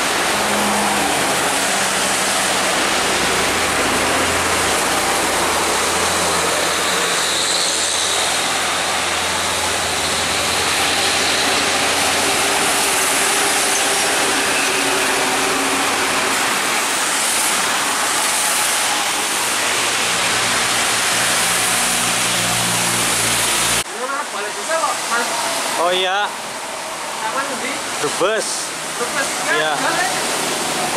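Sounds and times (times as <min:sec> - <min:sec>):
truck engines humming: 0:00.0 - 0:23.8
steady rain: 0:00.0 - 0:30.9
tyres hissing on wet road: 0:00.0 - 0:30.9.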